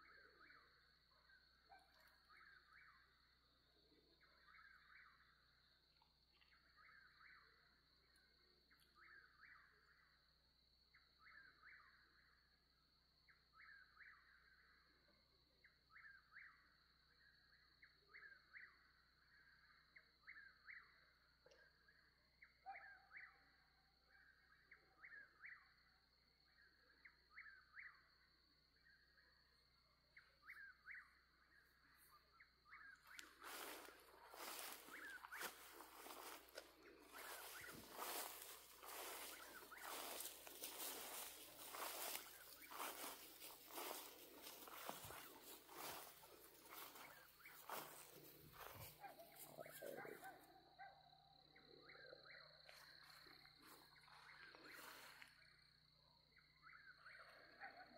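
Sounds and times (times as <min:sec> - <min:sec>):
high-pitched insect trill: 0:27.1 - 0:57.9.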